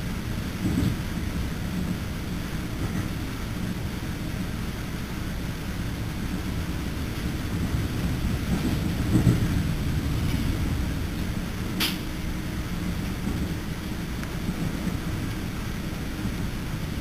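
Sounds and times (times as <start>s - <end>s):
train wheels rumbling: 0.0s - 17.0s.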